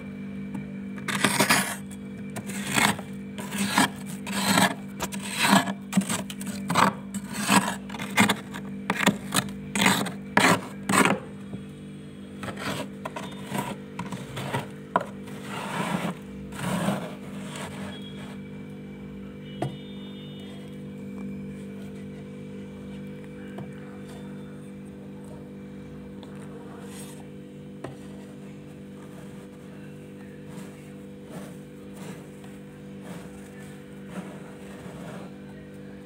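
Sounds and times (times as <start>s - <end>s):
steady low hum: 0.0s - 36.0s
metal spoon scraping frost: 1.0s - 11.4s, 12.4s - 18.5s, 26.7s - 27.3s, 29.0s - 35.5s.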